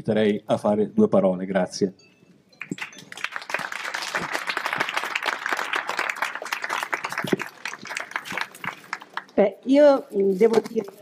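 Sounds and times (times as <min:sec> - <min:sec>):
audience applauding: 0:02.6 - 0:09.3.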